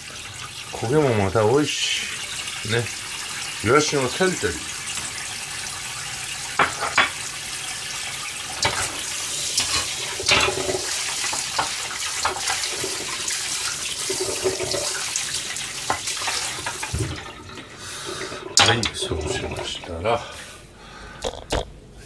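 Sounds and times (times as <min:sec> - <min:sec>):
tap running into sink: 0:06.5 - 0:07.3, 0:08.5 - 0:19.7
pan clattering against sink: 0:06.6 - 0:07.2, 0:08.6 - 0:13.0.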